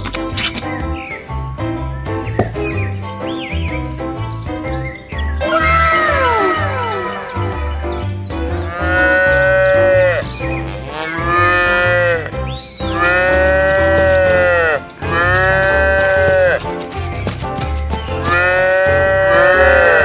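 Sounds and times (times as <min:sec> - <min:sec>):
background music with bass line: 0:00.0 - 0:20.0
cattle mooing: 0:08.6 - 0:12.3, 0:13.0 - 0:16.6, 0:18.2 - 0:20.0.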